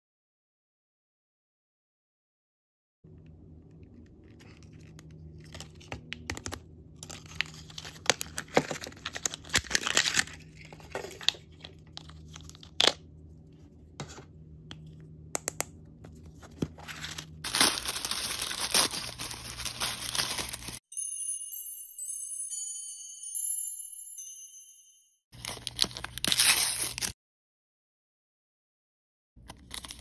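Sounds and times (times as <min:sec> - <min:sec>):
plastic packaging crinkling: 0:04.2 - 0:12.9, 0:16.2 - 0:20.8, 0:25.4 - 0:27.2.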